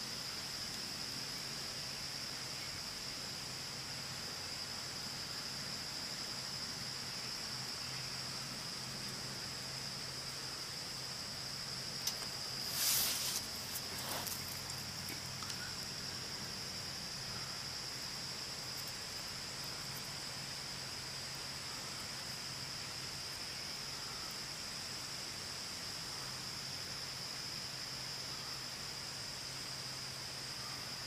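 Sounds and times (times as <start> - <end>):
insect chorus: 0.0 - 31.0
hiss: 12.0 - 14.9.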